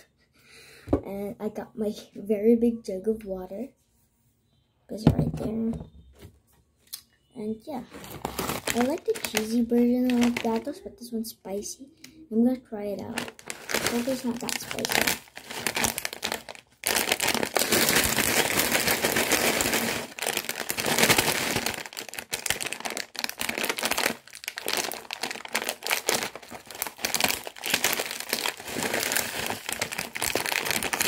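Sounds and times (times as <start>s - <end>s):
plastic chip bag crinkling: 7.8s - 10.8s, 12.9s - 31.0s.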